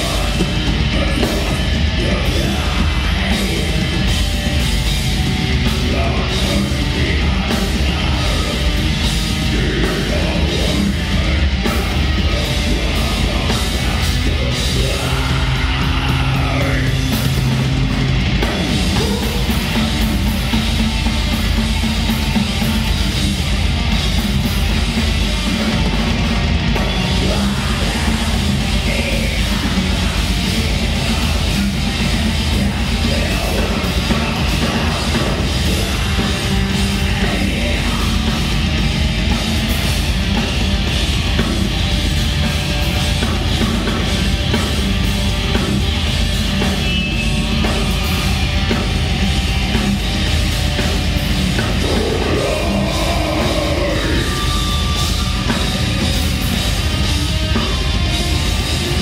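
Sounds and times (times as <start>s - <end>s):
singer shouting vocals: 0.0s - 4.1s, 5.8s - 17.6s, 18.6s - 20.1s, 27.1s - 38.8s, 51.7s - 55.4s
bass guitar: 0.0s - 59.0s
distorted electric guitars: 0.0s - 59.0s
drums: 0.0s - 59.0s.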